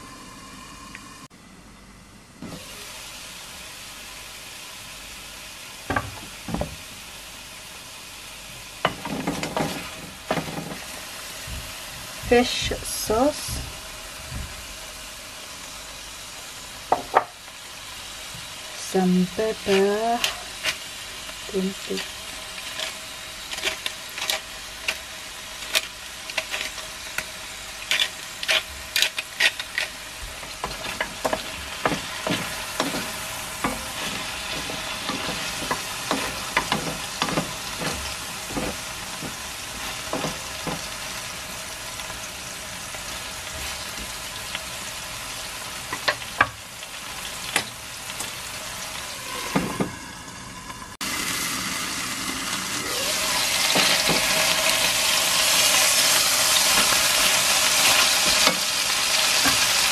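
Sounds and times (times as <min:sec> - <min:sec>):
chicken sizzling in oil: 0:02.5 - 0:59.9
wooden spoon scraping a pan: 0:08.9 - 0:11.0, 0:21.9 - 0:25.0, 0:27.8 - 0:41.0.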